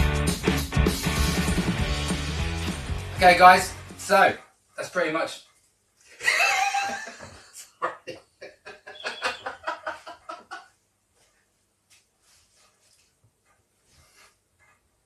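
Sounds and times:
man laughing: 6.2 - 10.7.

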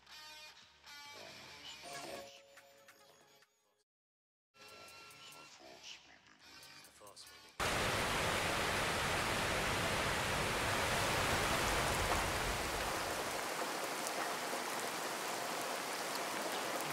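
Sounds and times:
steady rushing hiss: 7.6 - 14.6.

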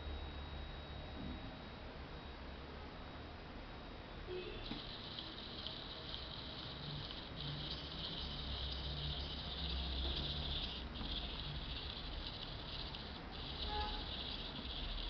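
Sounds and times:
toy robot motor whirring: 4.6 - 15.0.

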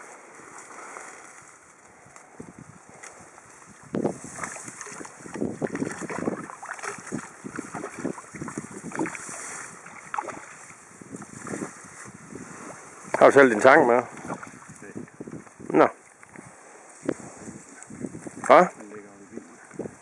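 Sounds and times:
water splashing from thrashing fish: 4.2 - 10.7.

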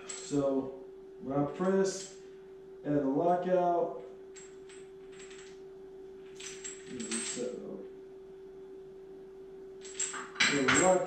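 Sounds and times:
steel chains clinking: 4.4 - 5.6, 6.4 - 7.7, 9.8 - 11.0.

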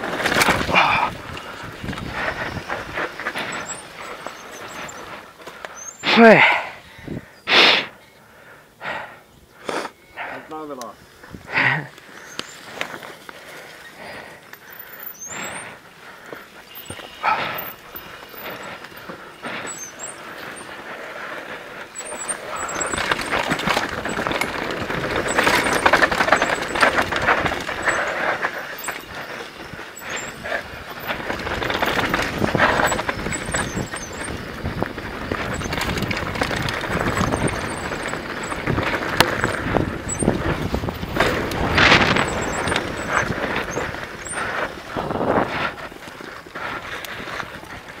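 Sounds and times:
wind rushing over microphone: 0.0 - 5.2, 6.6 - 7.4, 11.0 - 11.6, 22.2 - 48.0
bike rattling and knocking: 0.0 - 6.6, 11.4 - 48.0
tyres on dirt: 0.0 - 48.0.

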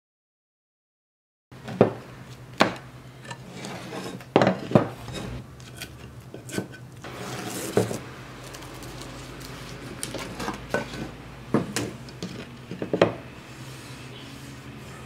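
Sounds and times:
wood sliding and scraping: 3.3 - 5.4
wooden knocks on workbench: 12.8 - 13.2.

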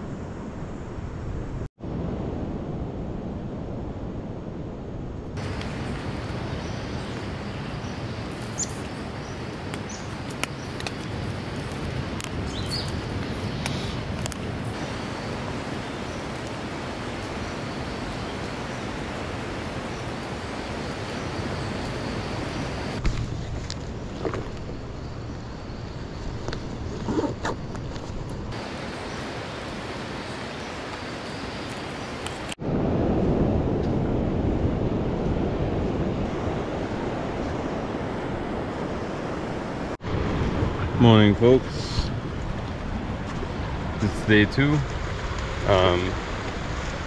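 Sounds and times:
surf rushing: 5.4 - 23.1, 28.5 - 47.0.

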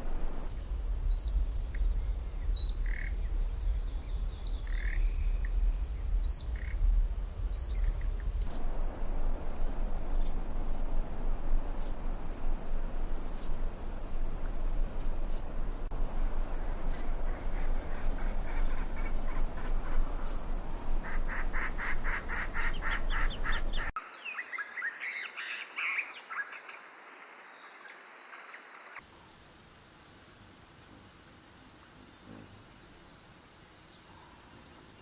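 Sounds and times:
steady hiss: 0.0 - 24.0, 26.8 - 35.0
faint outdoor ambience: 0.0 - 35.0
chattering animal calls: 16.9 - 23.9.

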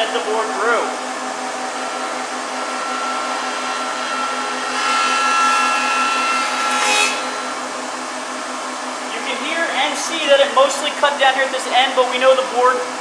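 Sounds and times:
thickness planer cutting board: 0.0 - 8.2.

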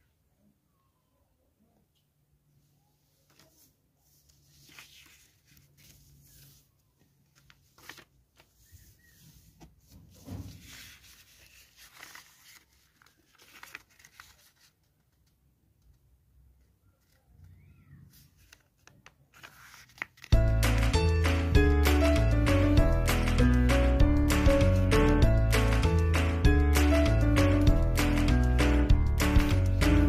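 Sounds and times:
paper rustling being folded: 3.0 - 16.0, 16.8 - 20.9, 29.2 - 30.0.

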